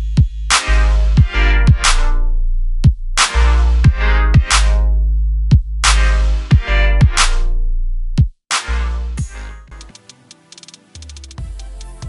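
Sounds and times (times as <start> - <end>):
deep bass: 0.0 - 9.9
fast ticking percussion: 9.7 - 12.0.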